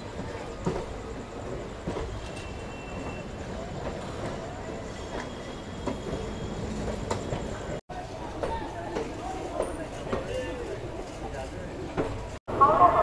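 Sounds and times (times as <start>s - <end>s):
wheels clicking over rail joints: 0.0s - 12.4s
train rumbling along track: 0.0s - 13.0s
faint high wheel squeal: 0.2s - 7.8s.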